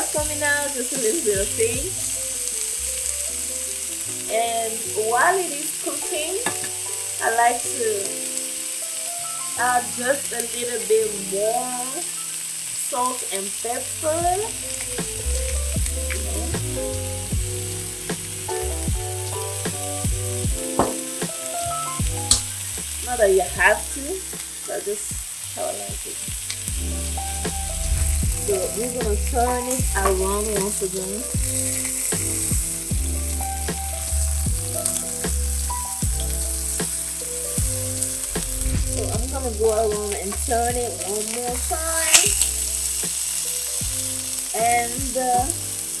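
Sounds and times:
background music with beat: 0:00.0 - 0:04.5, 0:13.9 - 0:46.0
steaks sizzling in a pan: 0:00.0 - 0:46.0.

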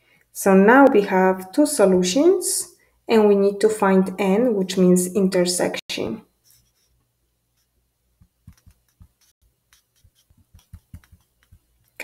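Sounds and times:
stylus tapping on tablet screen: 0:07.6 - 0:12.0.

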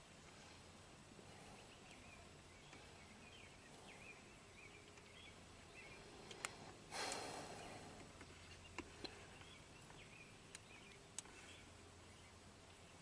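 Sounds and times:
faint clicks: 0:06.2 - 0:07.3, 0:08.0 - 0:11.4.

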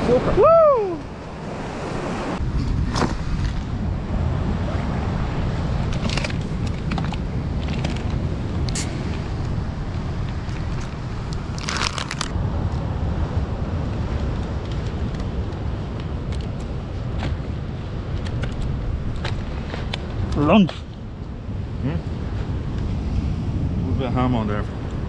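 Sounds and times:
sea surf: 0:00.0 - 0:25.0
wind rumble on microphone: 0:00.0 - 0:25.0
short crackles and crunches: 0:05.8 - 0:09.2, 0:10.3 - 0:12.4.

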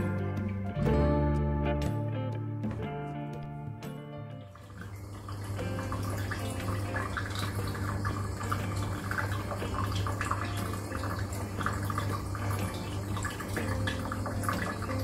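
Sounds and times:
water trickling and dripping: 0:04.5 - 0:15.0.

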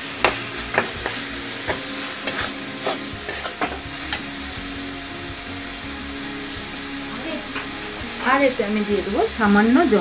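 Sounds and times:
oil sizzling: 0:00.0 - 0:10.0
metal spatula scraping a wok: 0:00.2 - 0:04.4.

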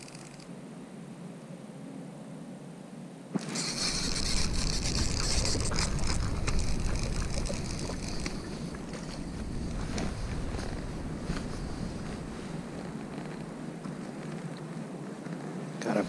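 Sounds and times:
fishing reel and rod handling: 0:03.4 - 0:09.3
fish splashing in water: 0:03.4 - 0:10.2.

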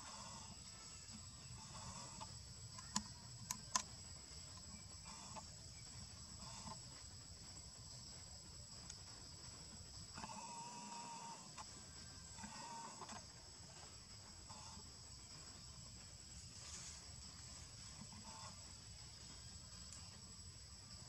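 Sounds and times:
insects droning: 0:00.0 - 0:21.0
sharp clicks: 0:02.2 - 0:04.0.

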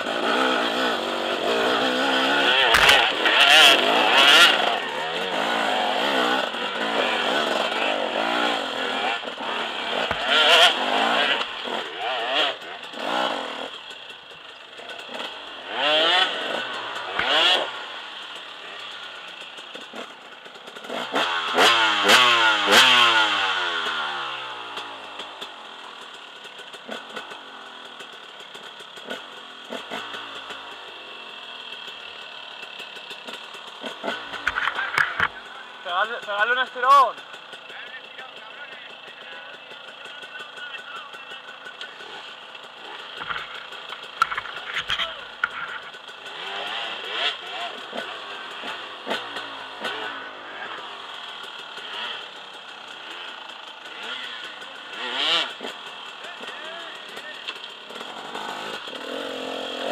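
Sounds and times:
dirt bike engines revving: 0:00.0 - 0:59.9
knocks and clatter from rocks: 0:43.2 - 0:45.8.

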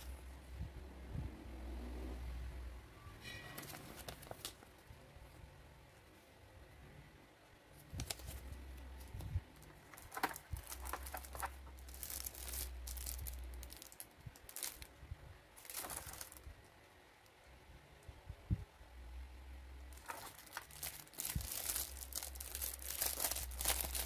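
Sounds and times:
paper and plastic packaging rustling: 0:03.5 - 0:04.8, 0:07.8 - 0:14.9, 0:15.6 - 0:16.5, 0:19.9 - 0:24.0.

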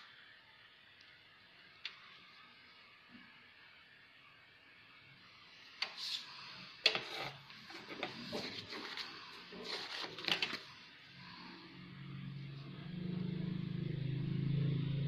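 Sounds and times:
paper rustling: 0:07.7 - 0:10.8.

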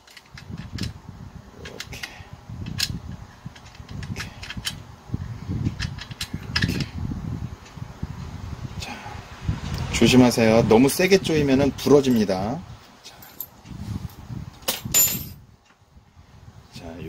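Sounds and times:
tools clicking on metal bolt: 0:03.6 - 0:04.8.

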